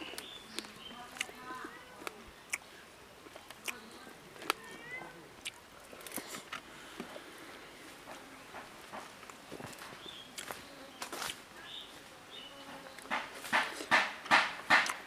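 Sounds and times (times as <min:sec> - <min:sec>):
lip smacks and chewing: 0:02.0 - 0:02.7, 0:03.3 - 0:03.8, 0:05.4 - 0:06.6.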